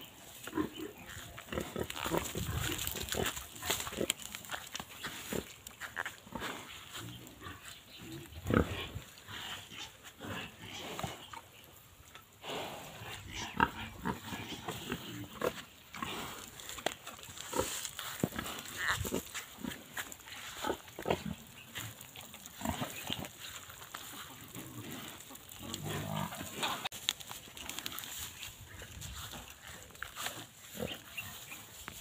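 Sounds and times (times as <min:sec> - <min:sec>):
pig grunting: 0:00.4 - 0:04.2, 0:06.3 - 0:11.4, 0:12.4 - 0:16.8, 0:17.4 - 0:26.9.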